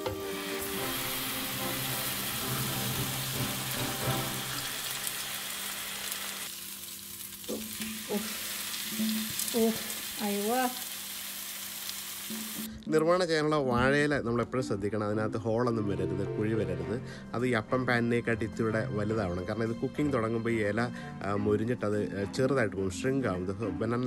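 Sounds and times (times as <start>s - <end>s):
fish sizzling in oil: 0.2s - 12.7s.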